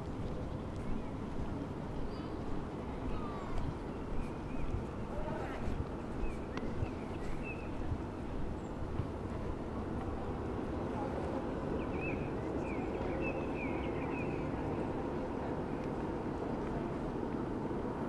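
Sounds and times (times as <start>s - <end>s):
small birds chirping: 0.0s - 9.0s, 11.2s - 15.9s
traffic hum: 0.0s - 18.0s
distant people talking: 0.8s - 18.0s.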